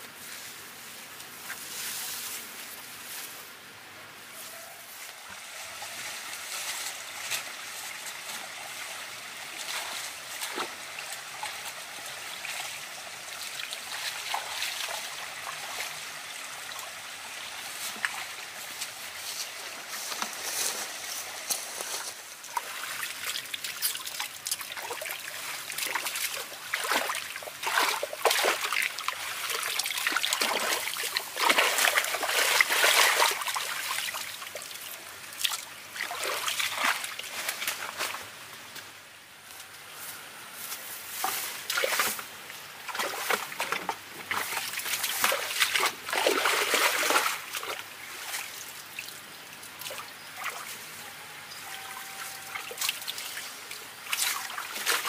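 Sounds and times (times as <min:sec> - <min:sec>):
water splashing and sloshing: 0:05.2 - 0:38.8, 0:41.1 - 0:55.0
water trickling: 0:22.4 - 0:38.1.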